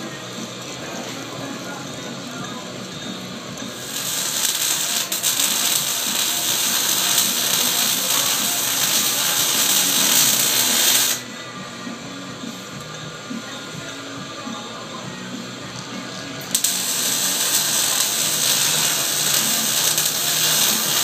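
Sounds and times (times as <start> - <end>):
background music: 0.0 - 21.0
loud steady hiss: 3.4 - 15.6, 16.4 - 21.0.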